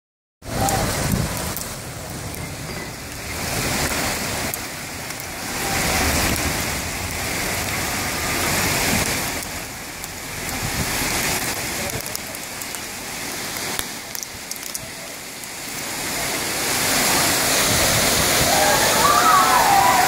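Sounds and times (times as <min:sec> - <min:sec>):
heavy rain and hail: 0:00.4 - 0:20.0.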